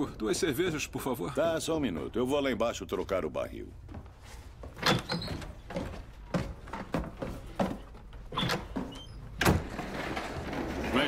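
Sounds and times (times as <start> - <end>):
footsteps on wooden ladder rungs: 3.8 - 9.0
wood squeaks: 4.6 - 11.0.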